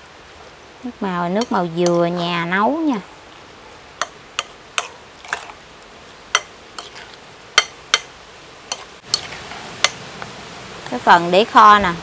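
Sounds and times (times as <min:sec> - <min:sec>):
metal spoon stirring thick mixture: 0:04.0 - 0:05.6, 0:06.4 - 0:08.1, 0:08.7 - 0:09.6.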